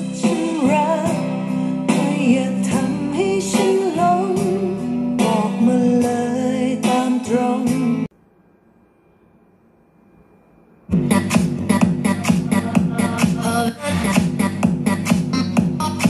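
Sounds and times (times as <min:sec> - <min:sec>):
song with guitar and singing: 0:00.0 - 0:08.1.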